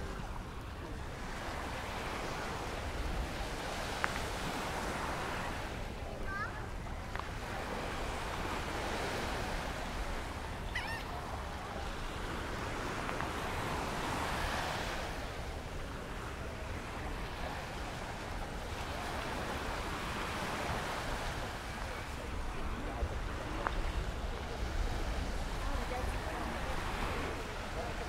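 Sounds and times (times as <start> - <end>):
surf washing onto beach: 0.0 - 28.0
wind rumbling on microphone: 0.0 - 28.0
bird call: 10.7 - 11.1.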